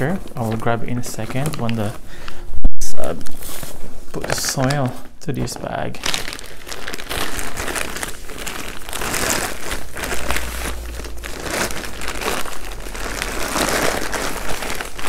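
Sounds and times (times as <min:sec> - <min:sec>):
plastic sack crinkling: 0:04.2 - 0:15.0.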